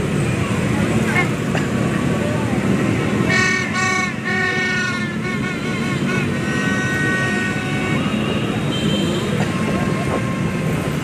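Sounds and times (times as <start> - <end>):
motorbikes running: 0.0 - 11.0
horns tooting: 3.2 - 10.7.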